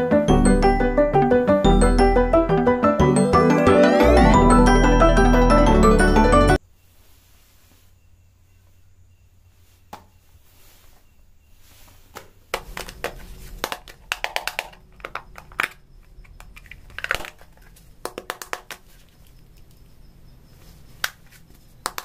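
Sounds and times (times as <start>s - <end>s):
cardboard clicks taps and crinkles: 12.1s - 19.9s, 21.0s - 22.0s.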